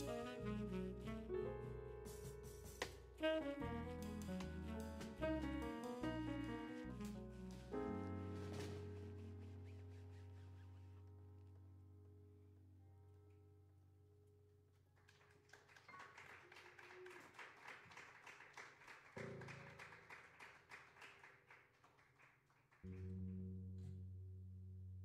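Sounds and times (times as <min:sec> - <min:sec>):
low bass note: 0:22.9 - 0:25.0.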